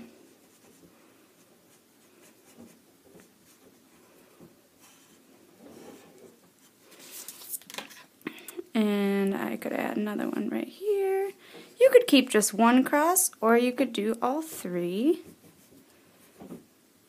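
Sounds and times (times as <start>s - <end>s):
pencil scratching on paper: 0.4s - 3.9s.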